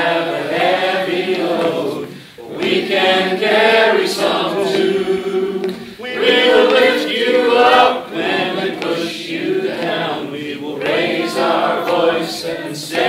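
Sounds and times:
congregation singing: 0.0 - 13.0
man leading singing: 3.9 - 13.0.

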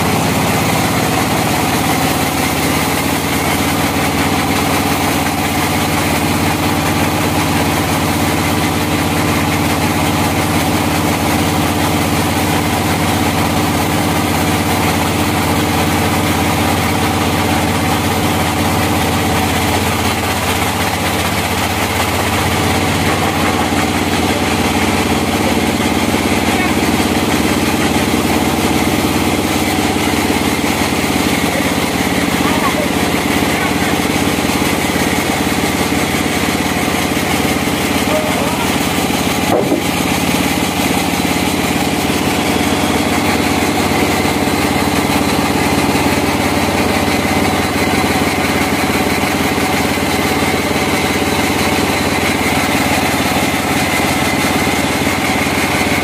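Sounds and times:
band saw cutting log: 0.0 - 56.0.

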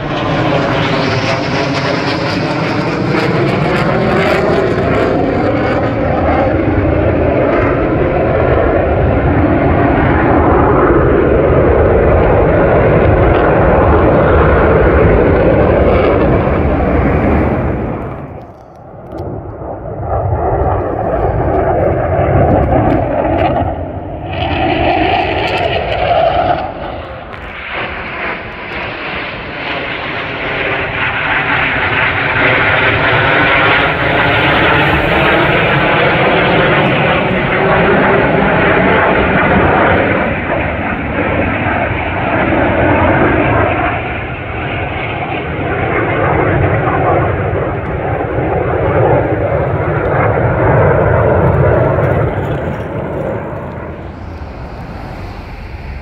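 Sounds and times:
fighter jets roaring overhead: 0.0 - 56.0
phasing jet whoosh: 13.5 - 18.5, 30.8 - 39.4, 50.6 - 56.0.

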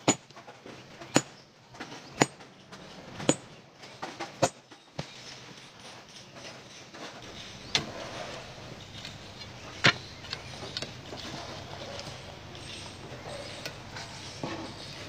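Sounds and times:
sledgehammer striking rock: 0.0 - 0.3, 1.1 - 1.3.

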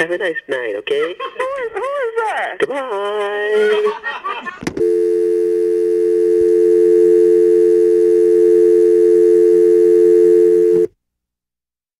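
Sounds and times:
telephone dial tone: 4.8 - 10.9.

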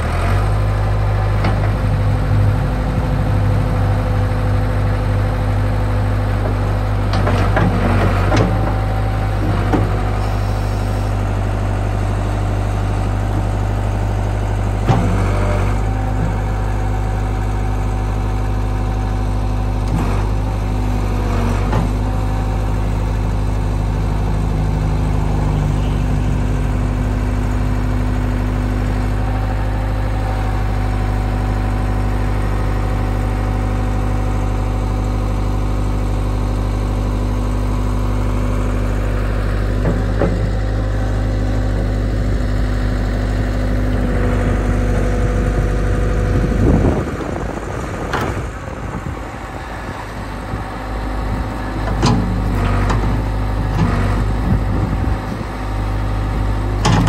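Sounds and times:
hydraulic boom and bucket: 0.0 - 20.7, 37.0 - 57.0
diesel engine running: 0.0 - 57.0.

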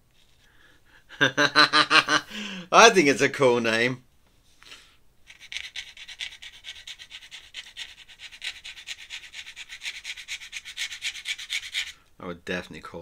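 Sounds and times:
pen nib scratching paper: 5.3 - 12.0.

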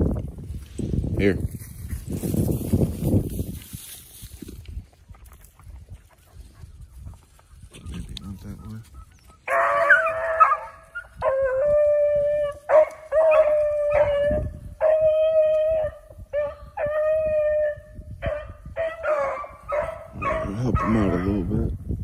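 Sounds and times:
dog baying and howling: 8.9 - 21.5.

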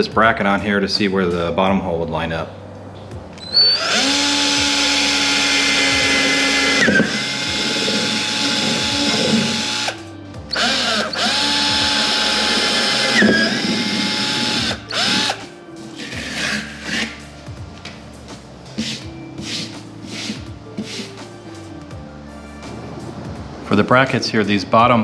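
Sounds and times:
cordless drill motor whine: 3.4 - 15.4.

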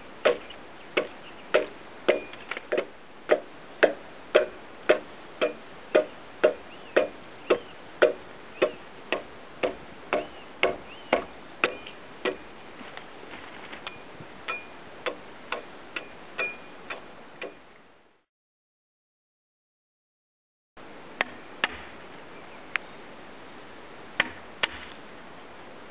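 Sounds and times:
axe chopping wood: 0.2 - 12.4, 14.5 - 16.1, 21.2 - 21.9, 24.2 - 24.9.

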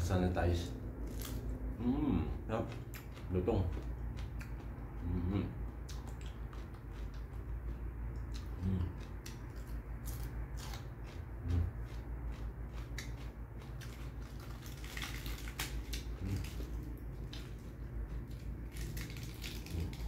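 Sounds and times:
crisp crunching of chewing: 2.5 - 20.0
lettuce leaves rustling torn: 14.2 - 16.8, 18.6 - 20.0.

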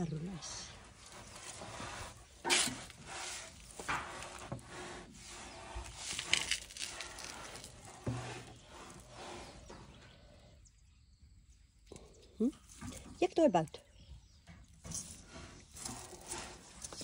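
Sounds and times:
elephant chewing: 0.1 - 10.5, 14.8 - 17.0
leaves rustling: 0.2 - 9.4
twigs crackling: 5.8 - 9.0.

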